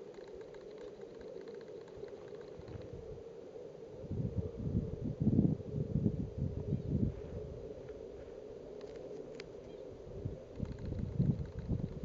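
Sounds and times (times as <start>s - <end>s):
wind buffeting microphone: 2.5s - 3.2s, 4.0s - 8.7s, 9.8s - 12.0s.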